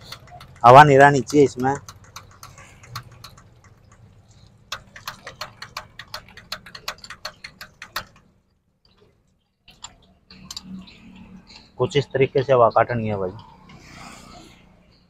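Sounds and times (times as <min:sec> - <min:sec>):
hand primer pump clicking: 0:00.0 - 0:08.2.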